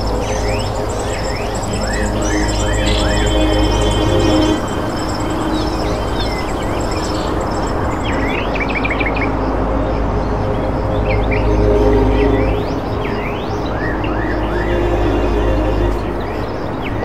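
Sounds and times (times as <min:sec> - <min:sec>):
small birds chirping: 0:00.0 - 0:09.3.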